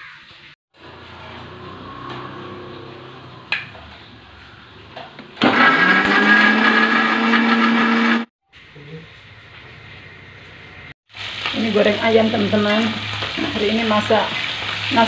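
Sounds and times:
mixer grinder whining: 5.4 - 8.3.

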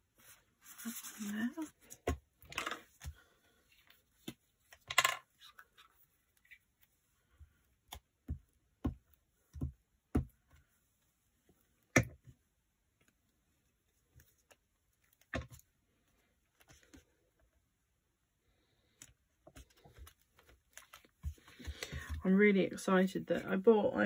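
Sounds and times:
paper rustling: 0.2 - 2.0.

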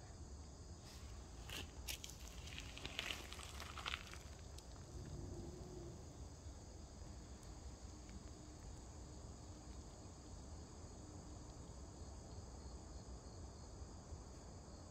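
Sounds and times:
low background rumble: 0.7 - 11.0.

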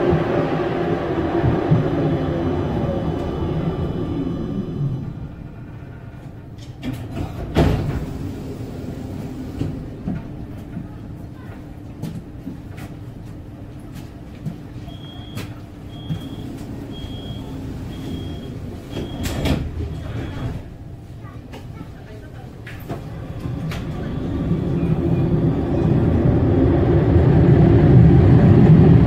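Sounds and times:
tram running hum: 0.0 - 29.0
sliding doors clattering shut: 5.7 - 10.3, 15.4 - 20.8
door warning beeps: 14.9 - 20.7.

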